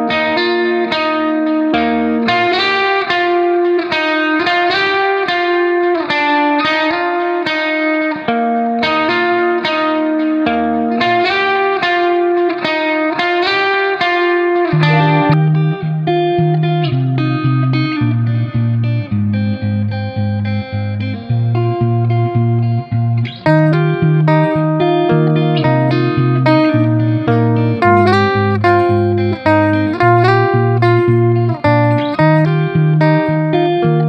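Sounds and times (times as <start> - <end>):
plucked guitar melody: 0.0 - 34.0
low bass line: 14.8 - 34.0.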